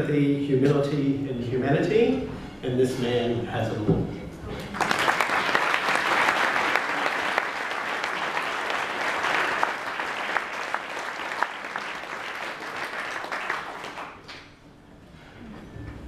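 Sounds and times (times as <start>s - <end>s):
audience applauding: 4.6s - 14.5s.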